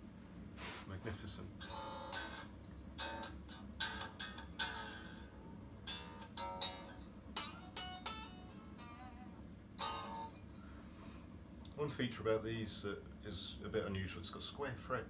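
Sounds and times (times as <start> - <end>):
unplugged electric guitar strummed: 1.6 - 11.2.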